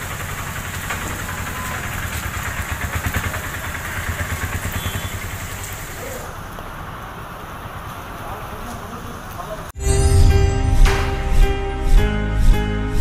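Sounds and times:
engine idling: 0:00.0 - 0:09.7.

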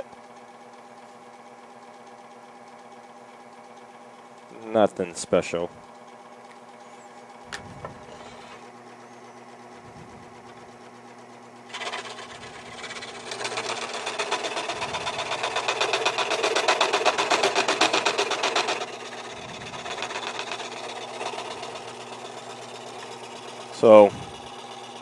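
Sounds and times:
scroll saw cutting wood: 0:08.0 - 0:08.8, 0:11.7 - 0:25.0.

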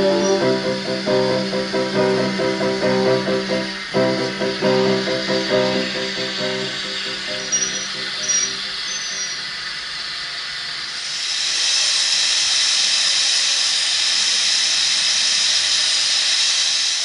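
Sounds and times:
steam locomotive hissing steam: 0:00.0 - 0:17.0.

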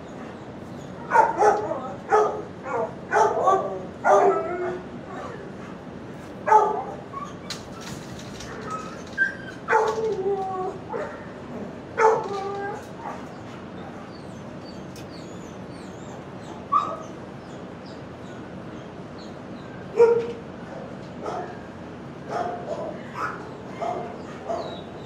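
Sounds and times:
dogs barking: 0:00.1 - 0:07.6, 0:08.3 - 0:17.6, 0:19.8 - 0:25.0
dog whining: 0:00.8 - 0:05.6, 0:06.5 - 0:17.6.

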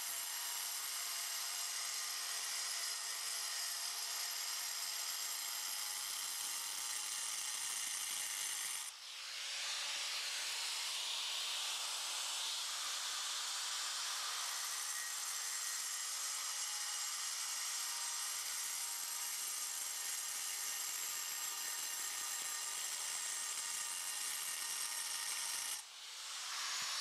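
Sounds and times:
angle grinder cutting stone: 0:00.0 - 0:27.0.

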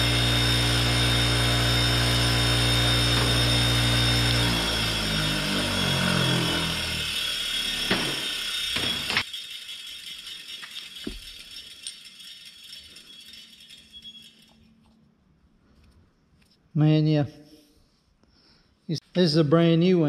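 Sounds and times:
bench grinder hum winding down: 0:00.0 - 0:09.3
clicks and rattles: 0:09.2 - 0:15.0.

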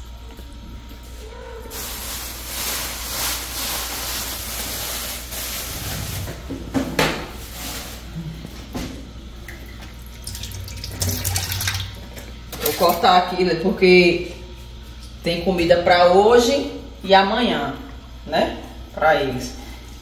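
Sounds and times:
tap water running into sink: 0:09.5 - 0:12.9.

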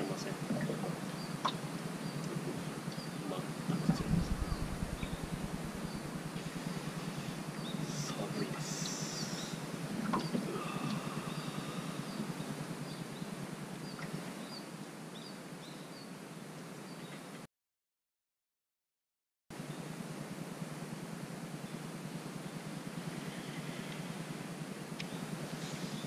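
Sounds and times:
low fluttering rumble: 0:03.6 - 0:13.6.

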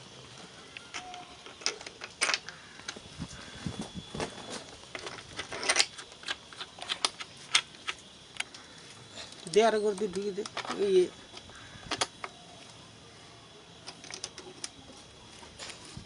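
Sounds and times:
small metal parts clicking: 0:00.7 - 0:03.0, 0:04.6 - 0:08.6, 0:09.3 - 0:12.4, 0:13.8 - 0:14.8.

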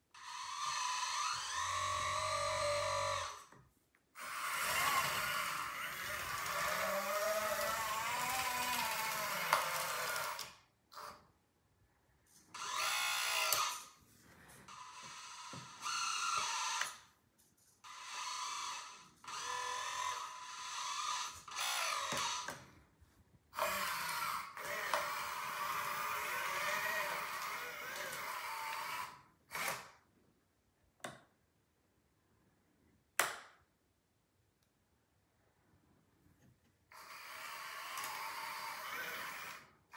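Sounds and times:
toy electric motors whining: 0:00.1 - 0:03.6, 0:04.2 - 0:11.3, 0:12.3 - 0:14.0, 0:14.7 - 0:22.8, 0:23.5 - 0:30.0, 0:36.9 - 0:39.9.

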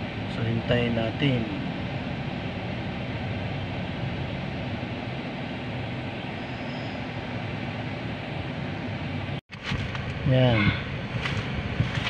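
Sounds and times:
car engine and air conditioning hum: 0:00.0 - 0:12.0.

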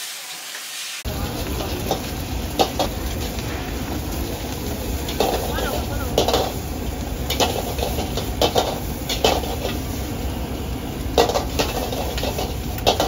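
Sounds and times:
low steady rumble: 0:01.1 - 0:12.9
metal utensils clanking on a wok: 0:01.2 - 0:03.4, 0:04.0 - 0:10.0, 0:11.0 - 0:13.0.

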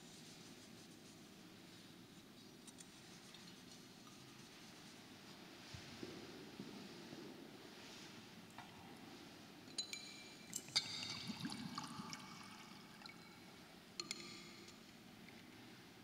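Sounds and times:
metal and glass vessels clinking: 0:09.7 - 0:12.4.

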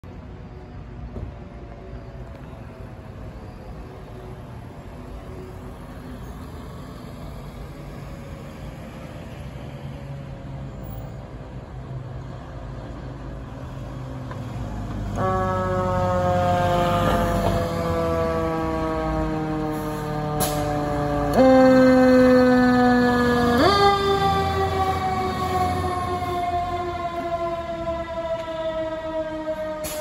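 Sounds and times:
fire engine rumbling: 0:00.0 - 0:30.0
faint siren: 0:14.9 - 0:30.0.

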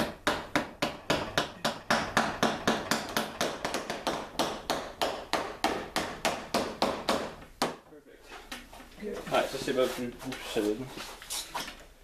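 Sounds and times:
small hammer tapping tacks into wood: 0:00.0 - 0:07.8.

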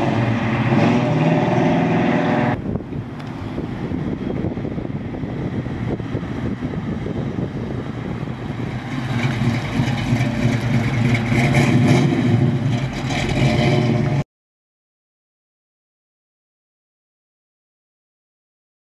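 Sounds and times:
car engine rumbling past: 0:03.4 - 0:14.2.

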